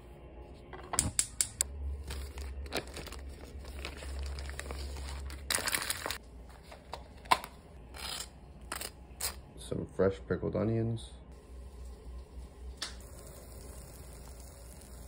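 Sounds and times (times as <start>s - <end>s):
paper and plastic crinkling: 1.9s - 8.9s.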